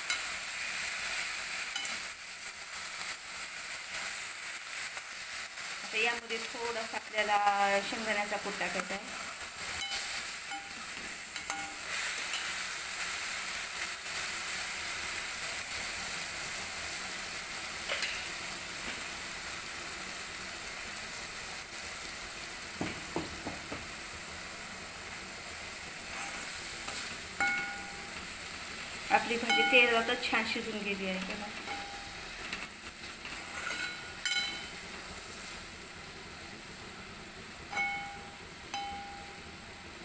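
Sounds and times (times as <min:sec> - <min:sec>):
food sizzling in oil: 0:00.0 - 0:40.0
metal spatula scraping pan: 0:26.0 - 0:27.7, 0:31.6 - 0:34.7.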